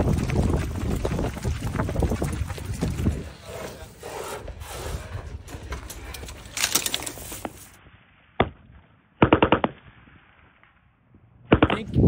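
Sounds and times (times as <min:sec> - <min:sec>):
scraping rubbing noise: 0:00.0 - 0:07.8
machine gun firing: 0:09.2 - 0:09.8.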